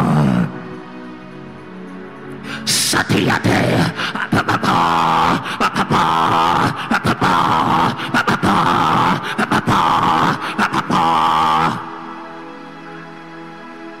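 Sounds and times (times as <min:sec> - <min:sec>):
man praying aloud: 0:02.6 - 0:12.0.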